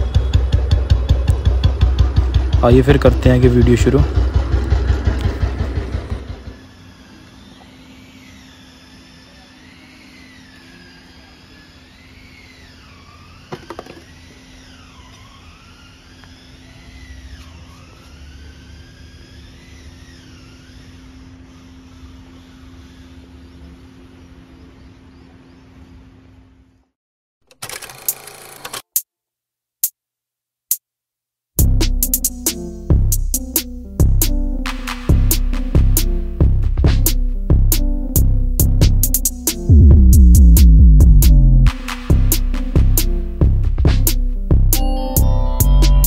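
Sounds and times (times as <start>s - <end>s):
motorcycle engine idling: 0.0s - 6.6s
thin wavering tone: 44.8s - 46.0s.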